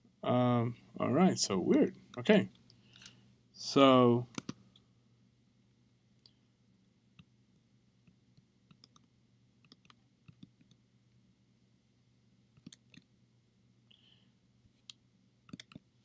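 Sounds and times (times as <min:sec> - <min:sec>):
low steady hum: 0:00.0 - 0:16.0
computer clicking: 0:04.3 - 0:04.6, 0:08.7 - 0:10.8, 0:12.6 - 0:13.1, 0:14.8 - 0:15.8.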